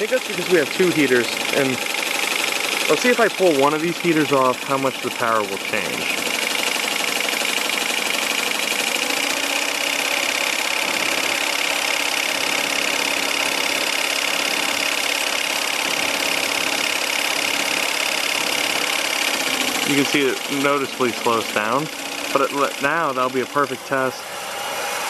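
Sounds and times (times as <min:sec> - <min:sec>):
turbine whirring: 0:00.0 - 0:25.0.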